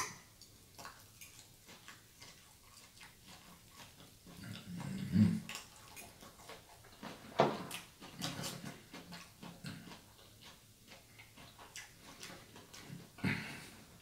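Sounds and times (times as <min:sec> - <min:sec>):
wet mouth clicks and smacks: 0:00.0 - 0:04.6
close chewing of food: 0:00.0 - 0:14.0.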